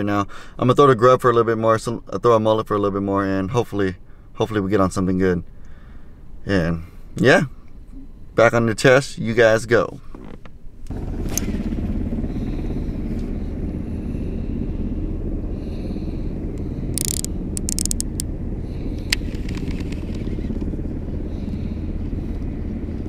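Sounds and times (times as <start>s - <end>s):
steady low rumble: 10.7s - 23.0s
sharp clicks: 17.0s - 18.2s.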